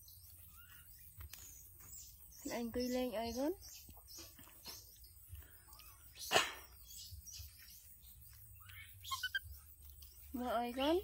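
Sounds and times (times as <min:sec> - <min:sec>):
short high chirps: 0:09.0 - 0:09.4.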